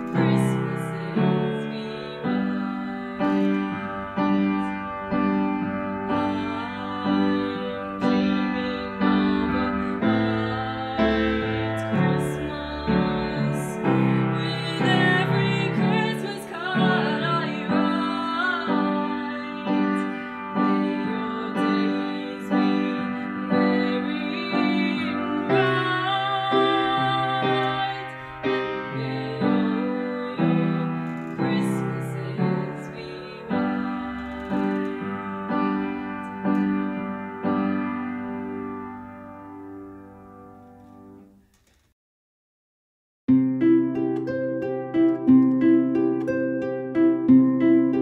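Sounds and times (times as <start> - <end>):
girl singing: 0.0 - 4.5, 5.2 - 35.9
grand piano chords: 0.0 - 41.3.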